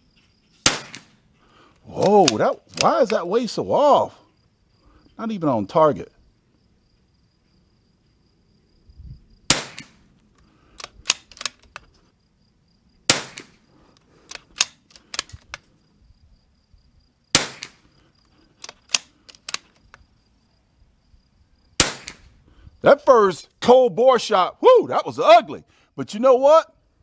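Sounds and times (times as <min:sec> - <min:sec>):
rifle shots: 0:00.6 - 0:01.2, 0:09.5 - 0:10.0, 0:13.1 - 0:13.6, 0:17.3 - 0:17.9, 0:21.8 - 0:22.3
rifle bolt clicks: 0:02.0 - 0:03.3, 0:09.7 - 0:11.9, 0:13.3 - 0:15.7, 0:18.6 - 0:20.0.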